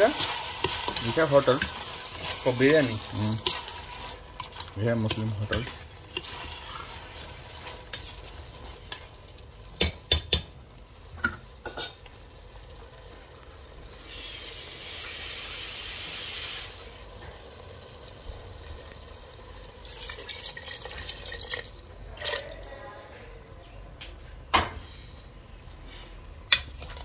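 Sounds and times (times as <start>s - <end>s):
steady hiss: 0.0s - 8.4s, 12.8s - 19.8s
metal spoon stirring in pot: 0.0s - 10.5s, 11.6s - 12.1s
water pouring into pot: 0.0s - 10.5s, 11.6s - 22.8s
spoon knocking on pot: 9.8s - 10.5s.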